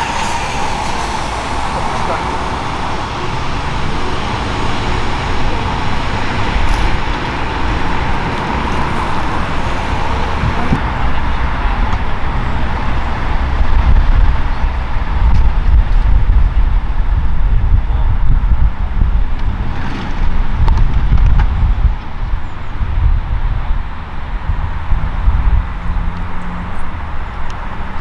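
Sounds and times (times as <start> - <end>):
helicopter turbine whine: 0.0 - 11.2
low rumble: 0.0 - 27.6.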